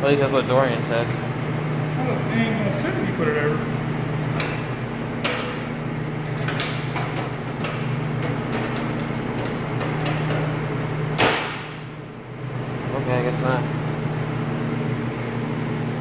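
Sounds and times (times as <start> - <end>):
steady low hum: 0.0 - 16.0
metal clicks and knocks: 6.2 - 10.4
loud metal clunk: 11.1 - 11.8.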